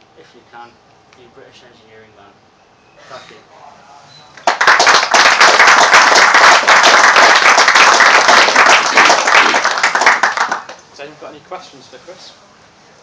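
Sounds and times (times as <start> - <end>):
audience applauding: 4.4 - 10.8.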